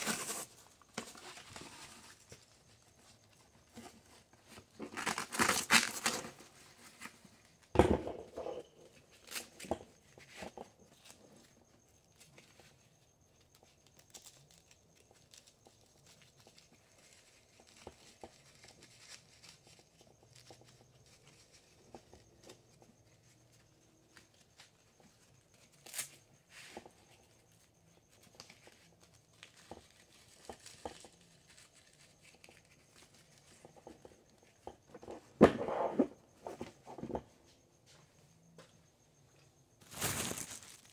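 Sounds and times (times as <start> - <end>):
hook-and-loop tearing: 4.8 - 6.4
nylon fabric rustling: 39.8 - 40.9.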